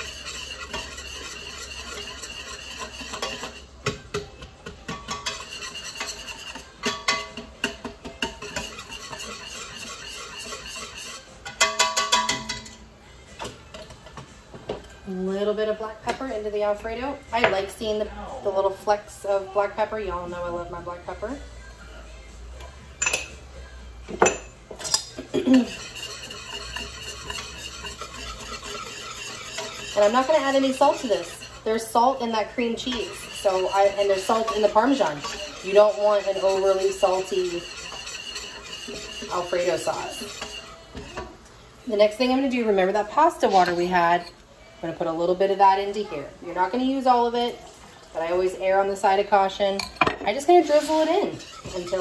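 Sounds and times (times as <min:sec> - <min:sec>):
whisk clicking against metal pot: 0:00.0 - 0:12.6, 0:25.7 - 0:41.3, 0:50.6 - 0:52.0.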